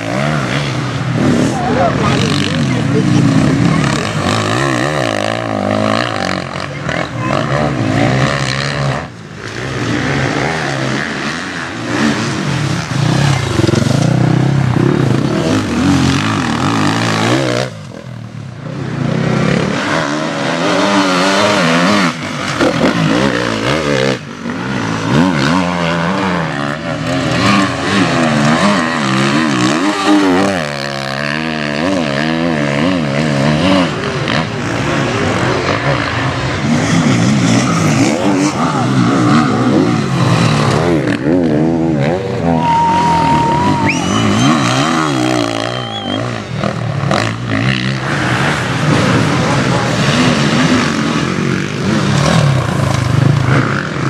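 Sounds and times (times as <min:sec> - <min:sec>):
motorcycle engines revving: 0:00.0 - 0:54.0.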